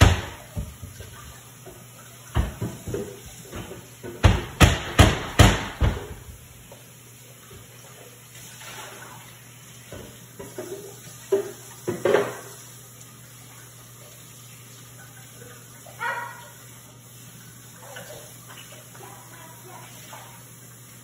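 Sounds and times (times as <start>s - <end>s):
sharp kitchen knocks: 0.0s - 1.0s, 2.3s - 6.3s.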